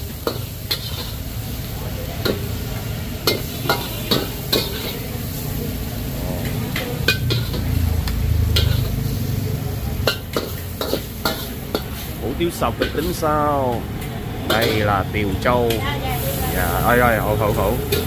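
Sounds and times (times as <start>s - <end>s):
noodles sizzling in a wok: 0.0s - 18.0s
metal spatula scraping pan: 8.4s - 9.1s.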